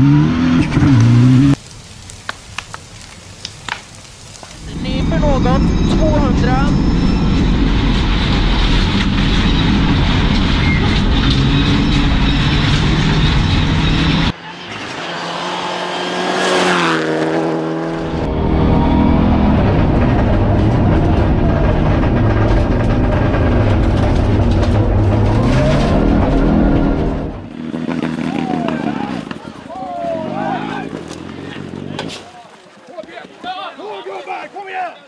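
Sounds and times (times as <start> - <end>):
rally car engine from cockpit: 0.0 - 1.6, 8.1 - 29.3
rally car passing on gravel: 4.0 - 32.2.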